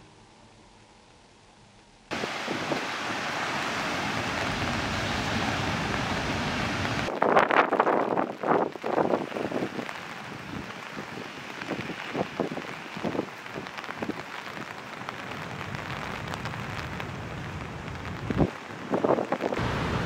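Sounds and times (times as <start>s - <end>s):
fast-flowing river rushing: 2.1s - 7.1s, 19.6s - 20.0s.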